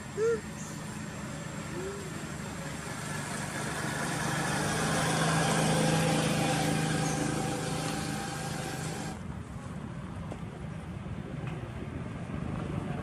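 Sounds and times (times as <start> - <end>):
motor engine running: 0.0 - 9.2.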